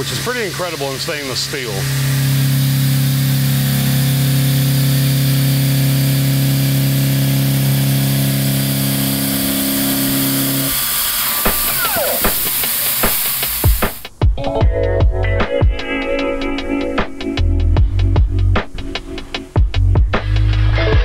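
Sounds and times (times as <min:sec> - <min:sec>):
end mill milling steel: 0:00.0 - 0:14.0
brief falling whine: 0:11.0 - 0:13.9.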